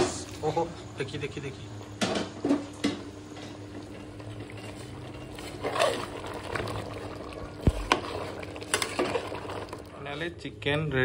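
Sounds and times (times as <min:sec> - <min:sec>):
curry bubbling in a pot: 0:03.8 - 0:10.1.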